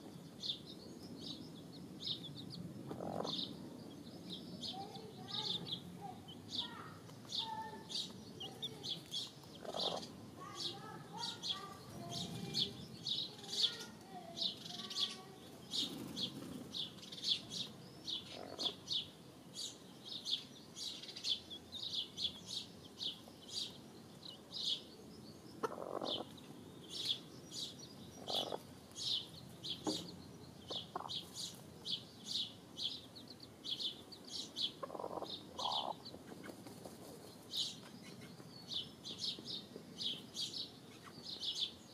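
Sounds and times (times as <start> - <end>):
chicks chirping: 0.0 - 41.8
hens clucking: 2.8 - 3.6, 8.0 - 10.2, 25.6 - 26.4, 28.2 - 28.8, 30.7 - 31.4, 34.6 - 37.2.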